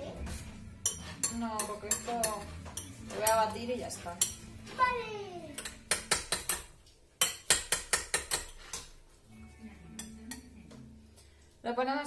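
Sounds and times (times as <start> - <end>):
utensil clinking against dish: 0.8 - 4.7.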